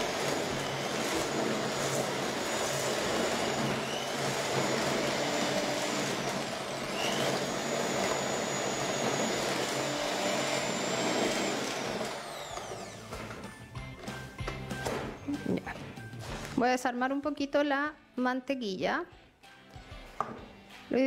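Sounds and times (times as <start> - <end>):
electric hand mixer running: 0.0 - 15.2.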